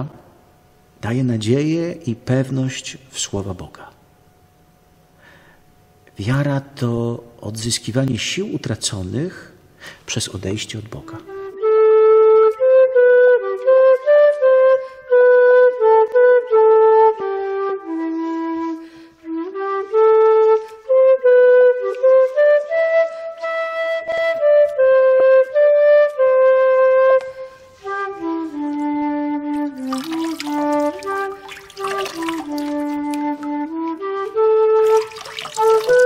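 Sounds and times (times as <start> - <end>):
flute playing slow melody: 11.1 - 36.0.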